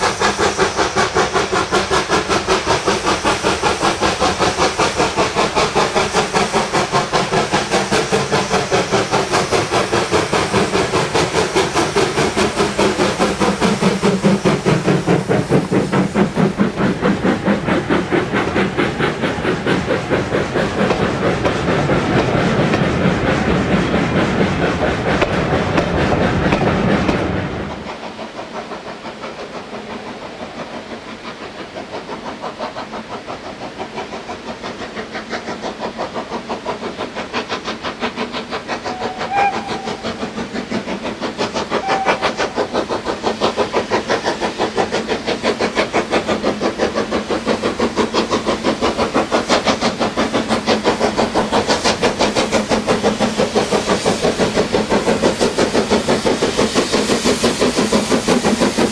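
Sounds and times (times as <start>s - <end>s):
steam locomotive chuffing: 0.0s - 58.9s
train wheels clicking over rail joints: 0.0s - 58.9s
train whistle: 38.9s - 40.2s, 41.8s - 42.6s.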